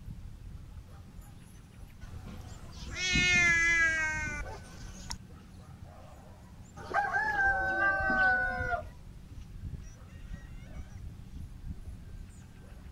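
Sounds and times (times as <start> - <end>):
rooster crowing: 6.8 - 8.9.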